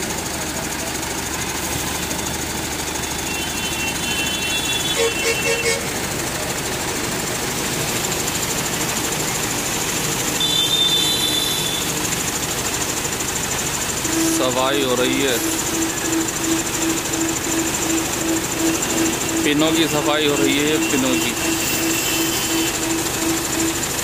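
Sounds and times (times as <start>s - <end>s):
diesel engine running: 0.0s - 24.0s
short high-pitched squeals: 13.8s - 24.0s.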